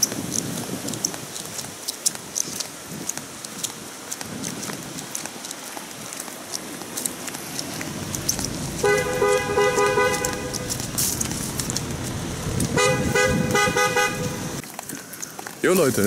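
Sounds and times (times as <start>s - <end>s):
street noise: 0.0s - 16.0s
car horn tooting: 8.7s - 11.0s, 12.7s - 14.6s.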